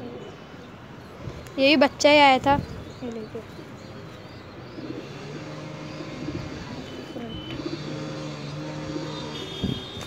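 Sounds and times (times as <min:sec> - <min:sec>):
pigeons cooing: 0:00.0 - 0:00.6, 0:02.7 - 0:10.0
low mechanical hum: 0:04.8 - 0:09.6.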